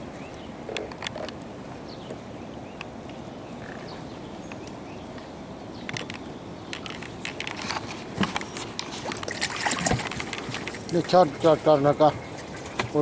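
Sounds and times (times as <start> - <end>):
outdoor background noise: 0.0 - 13.0
small clicks and rustles: 4.5 - 11.5.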